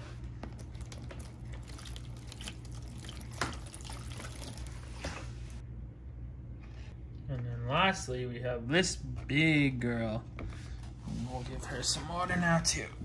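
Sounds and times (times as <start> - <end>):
water pouring and splashing: 0.4 - 5.6.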